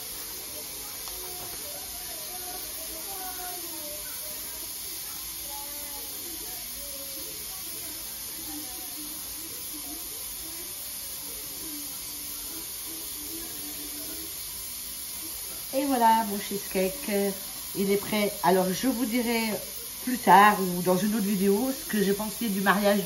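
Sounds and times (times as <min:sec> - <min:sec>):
faint distant voices: 0:00.0 - 0:23.0
room and recording hiss: 0:00.0 - 0:23.0.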